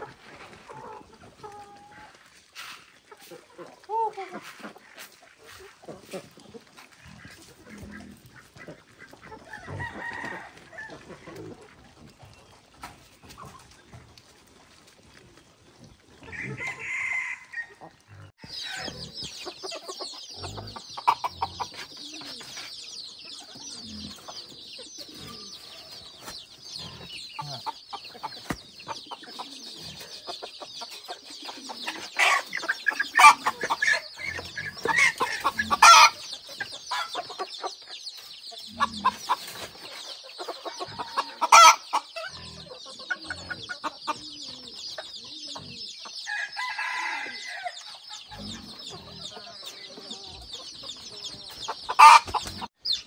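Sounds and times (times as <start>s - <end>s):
chickens clucking: 0.0s - 53.0s
rooster crowing: 46.3s - 47.8s.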